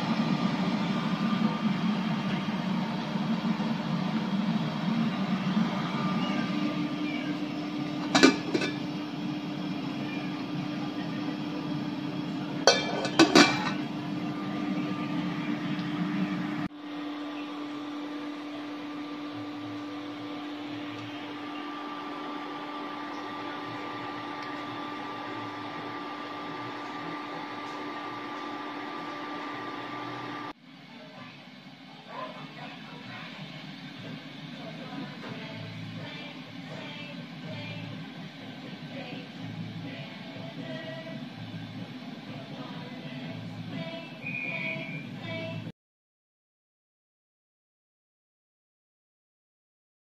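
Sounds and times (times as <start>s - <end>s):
electrical hum with hiss: 0.0s - 45.7s
metal utensils clinking on cookware: 8.0s - 8.8s, 12.6s - 13.8s.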